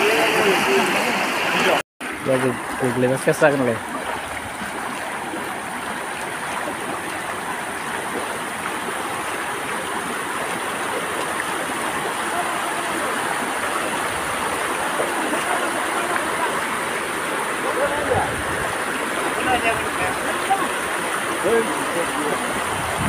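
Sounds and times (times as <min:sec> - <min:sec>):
floodwater rushing: 0:00.0 - 0:23.0.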